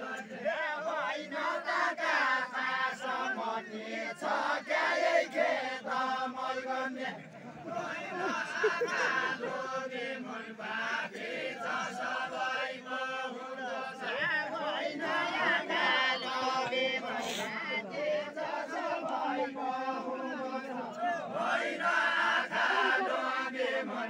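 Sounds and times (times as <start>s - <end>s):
men singing in unison: 0.0s - 24.0s.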